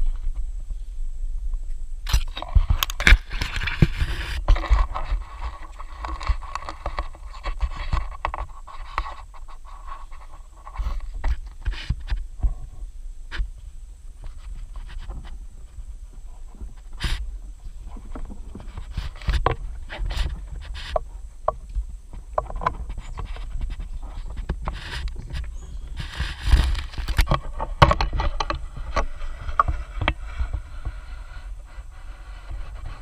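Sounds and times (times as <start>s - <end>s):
faint steady hum: 0.0s - 33.0s
scrapes and clicks: 2.0s - 13.5s, 14.2s - 33.0s
camera handling and rustling: 2.1s - 9.5s, 22.6s - 30.3s.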